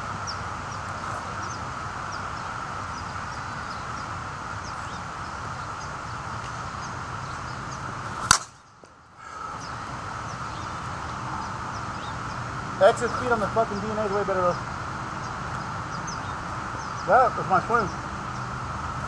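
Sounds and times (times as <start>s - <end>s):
bat striking a ball: 8.2s - 8.6s.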